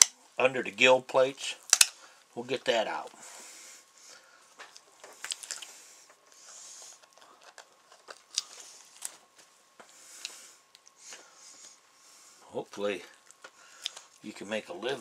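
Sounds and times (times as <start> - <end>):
crunchy clicks of cutting fish: 1.6 - 2.0, 13.2 - 14.2.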